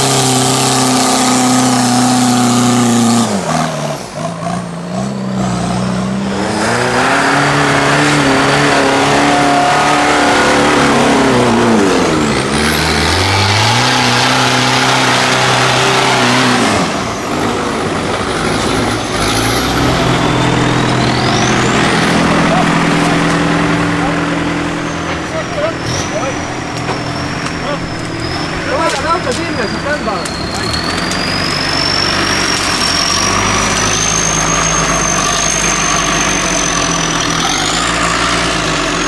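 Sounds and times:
off-road vehicle engine revving: 0.0 - 39.0.

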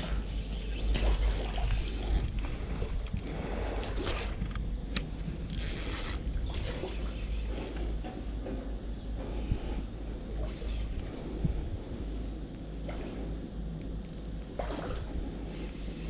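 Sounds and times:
low rumble: 0.0 - 16.0
fishing reel whirring: 1.1 - 3.4, 5.1 - 6.3, 7.5 - 7.8, 13.9 - 14.3
sharp reel clicks: 4.9 - 6.3.

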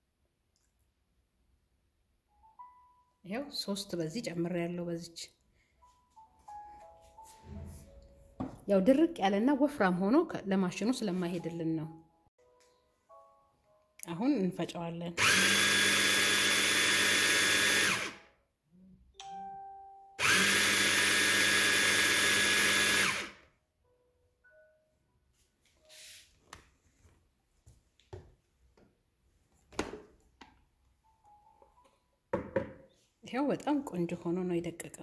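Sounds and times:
hand blender motor whining: 15.2 - 18.2, 20.2 - 23.4.

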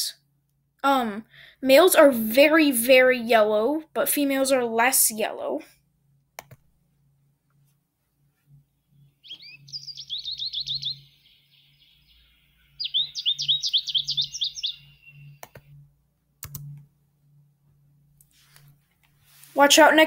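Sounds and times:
short clicks: 6.4 - 6.6, 15.4 - 15.7, 16.4 - 16.9
recorded bird song twittering: 8.5 - 18.0.

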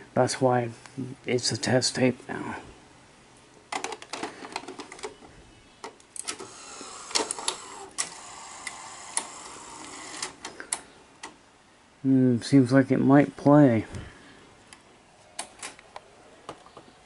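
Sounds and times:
tape loading mechanism whirring: 5.9 - 11.4.

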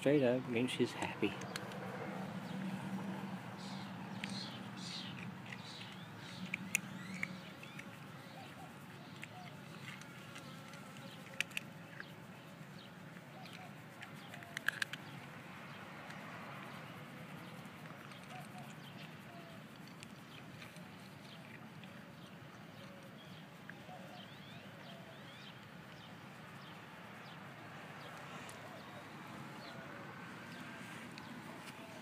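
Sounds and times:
buzzing insect: 9.1 - 13.4
cat crunching dry kibble: 14.2 - 15.1.

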